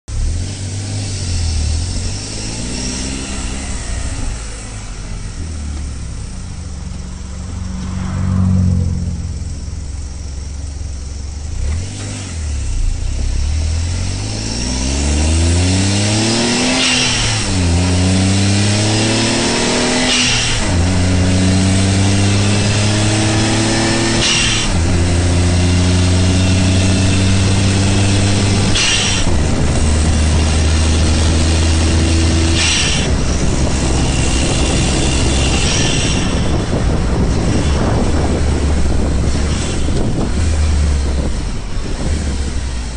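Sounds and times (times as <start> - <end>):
car engine exhaust accelerating: 0.1 - 42.9
gear shift hiss: 28.2 - 31.8.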